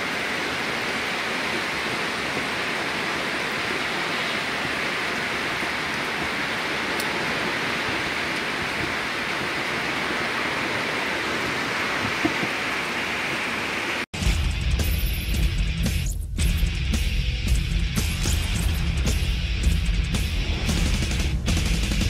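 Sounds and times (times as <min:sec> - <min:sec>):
steady rain falling: 0:00.0 - 0:14.1.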